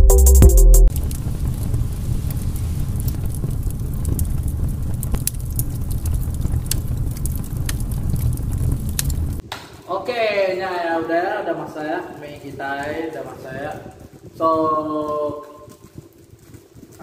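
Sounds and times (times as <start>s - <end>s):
music: 0.0s - 0.9s
fire rumbling and crackling: 0.9s - 9.5s, 11.0s - 17.0s.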